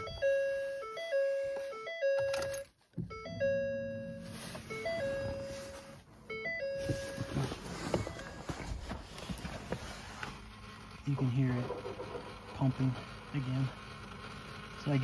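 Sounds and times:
dashboard warning chime: 0.0 - 8.9
fuel pump hum: 0.0 - 15.0.

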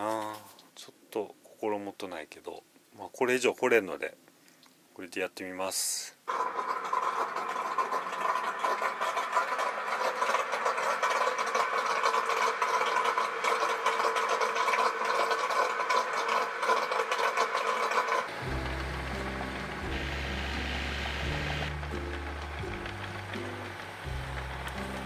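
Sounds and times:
small motor running: 12.2 - 25.0
background music: 18.3 - 25.0.

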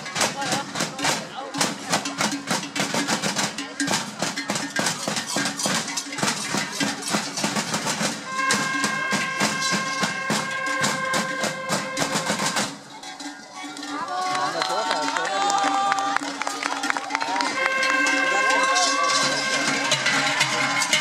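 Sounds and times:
cowbells clanging: 0.0 - 15.2, 16.3 - 21.0.

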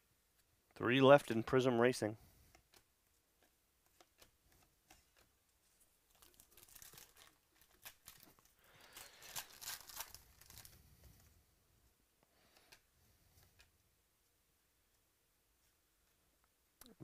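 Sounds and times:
foil wrapper crinkling and tearing: 6.1 - 10.8.

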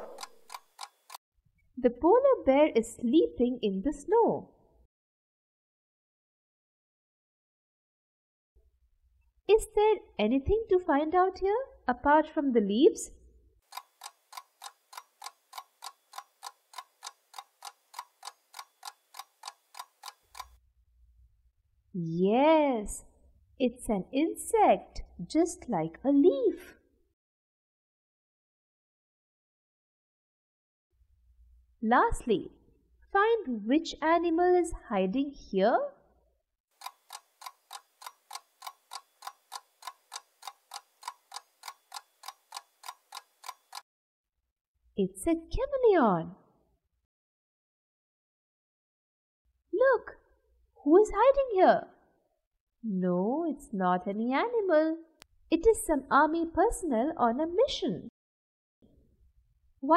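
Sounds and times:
clock-like ticking: 0.0 - 1.2, 13.7 - 20.6, 36.8 - 43.8.

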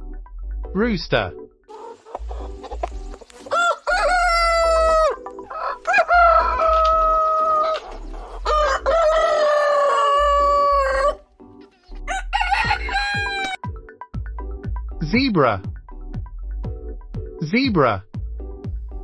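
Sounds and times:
rooster crowing: 3.5 - 7.8, 8.4 - 11.2, 12.1 - 13.6.

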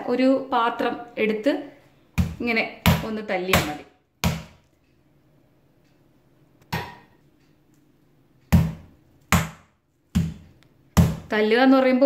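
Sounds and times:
meat mallet thudding on board: 2.2 - 4.6, 8.5 - 11.3.

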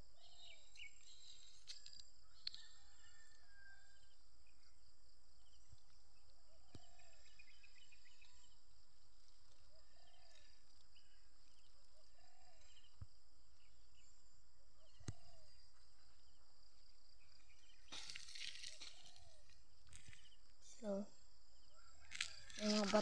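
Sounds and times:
bird chirps: 0.0 - 4.8, 5.4 - 8.6, 13.6 - 23.0
insects droning: 0.0 - 23.0
rustling: 17.8 - 20.3.

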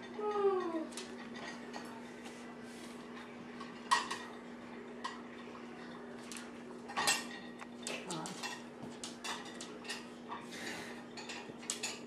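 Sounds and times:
dishes clinking in rack: 3.6 - 4.4, 6.9 - 10.5.

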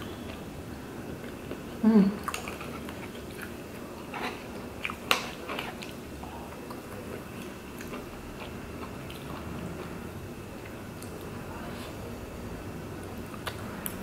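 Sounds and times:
quiet chewing: 2.2 - 12.1.

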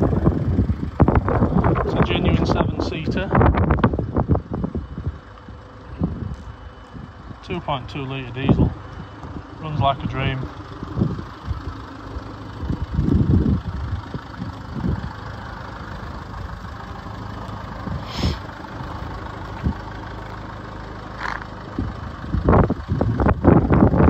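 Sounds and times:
diesel engine idling: 0.0 - 24.0.

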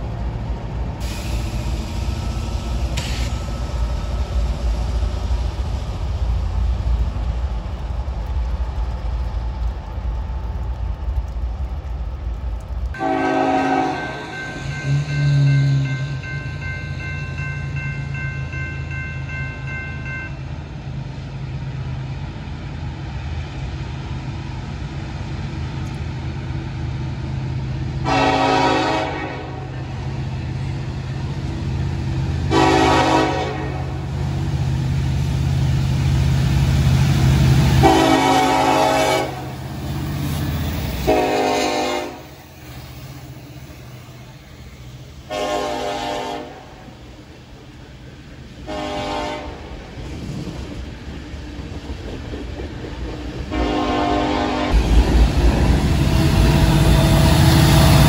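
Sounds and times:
diesel locomotive engine rumble: 0.0 - 58.0
railroad crossing bell ringing: 2.1 - 5.0, 13.8 - 20.7
locomotive air horn blasts: 13.0 - 15.5, 28.0 - 29.7, 32.5 - 34.0, 37.8 - 39.5, 41.0 - 42.3, 45.3 - 46.8, 48.6 - 49.6, 53.5 - 54.8.

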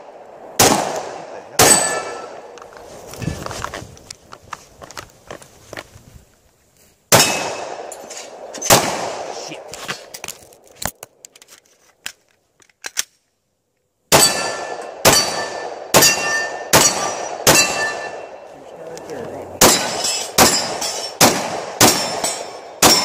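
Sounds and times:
pistol shots: 0.6 - 2.4, 7.1 - 9.6, 14.1 - 18.3, 19.6 - 23.0
steel plate targets ringing: 1.6 - 2.4, 14.1 - 18.4, 19.6 - 21.2, 21.8 - 23.0.

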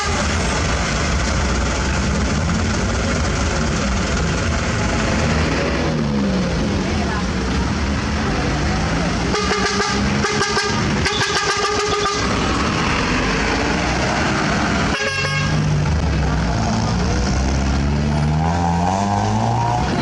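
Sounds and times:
truck engine revving: 0.0 - 20.0
truck horn tooting: 9.3 - 12.4, 14.9 - 15.7.

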